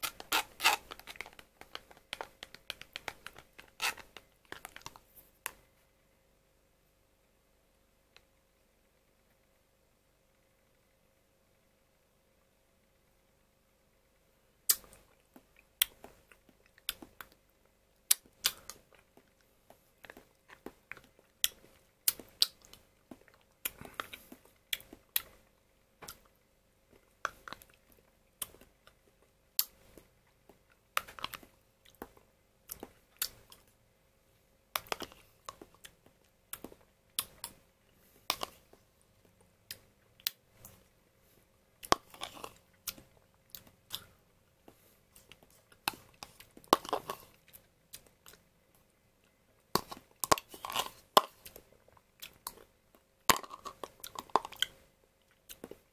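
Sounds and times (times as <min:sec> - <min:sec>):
metal spoon scraping plastic cup: 0:00.0 - 0:04.7.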